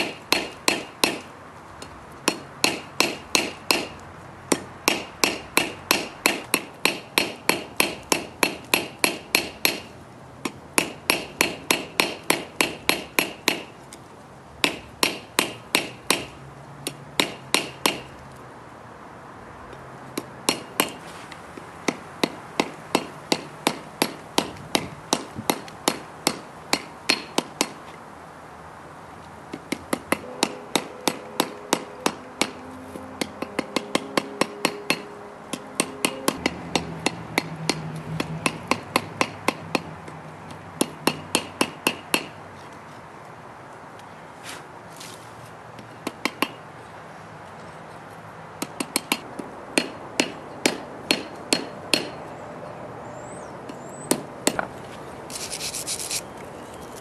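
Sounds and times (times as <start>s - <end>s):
hammer striking hot metal: 30.2s - 32.6s, 33.2s - 37.8s.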